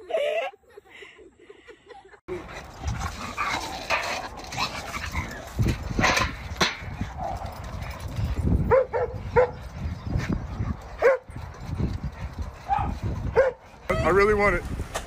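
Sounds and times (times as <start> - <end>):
dog barking: 11.0 - 11.2, 12.7 - 13.6.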